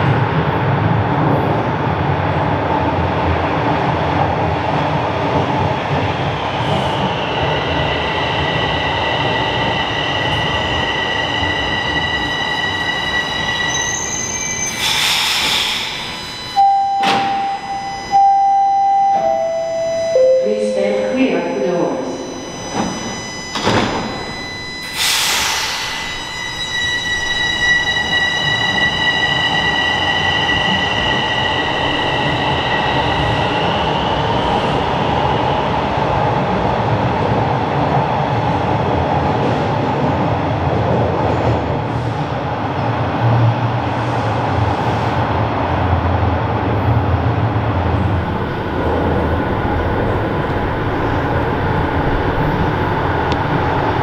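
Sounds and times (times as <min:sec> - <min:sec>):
train rumbling on rails: 0:00.0 - 0:54.0
high-pitched train tones: 0:06.6 - 0:36.0.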